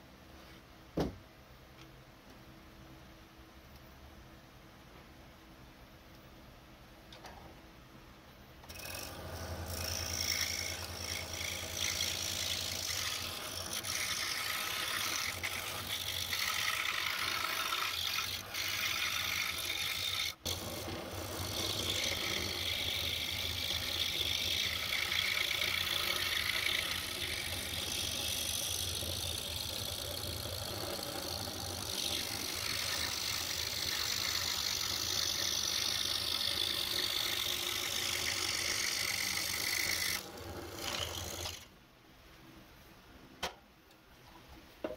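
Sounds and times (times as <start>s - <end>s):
scroll saw cutting wood: 8.6s - 41.7s.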